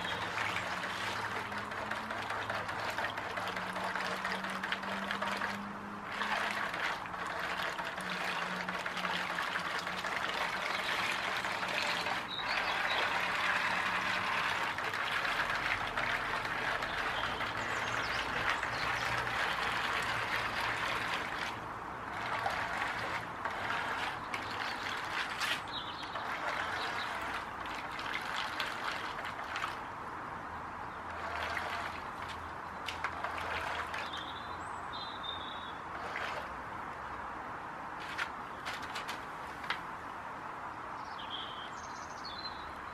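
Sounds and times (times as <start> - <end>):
low motor hum: 0.0 - 29.9, 31.0 - 34.5
splashing and churning water: 0.0 - 40.0.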